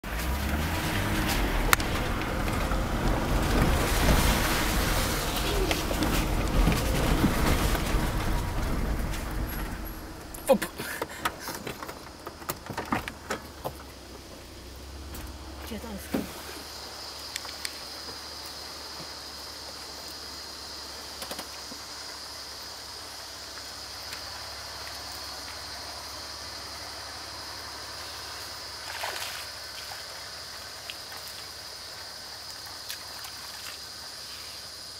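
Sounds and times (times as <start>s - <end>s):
low hum: 0.0s - 11.3s
rustle: 0.0s - 34.9s.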